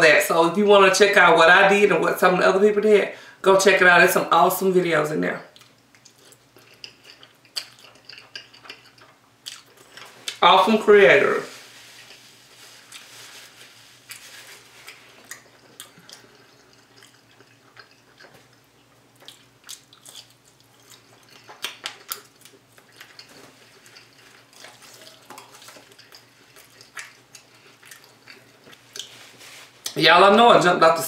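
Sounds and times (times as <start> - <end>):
wet chewing smacks and clicks: 5.6 - 10.4, 14.1 - 29.2.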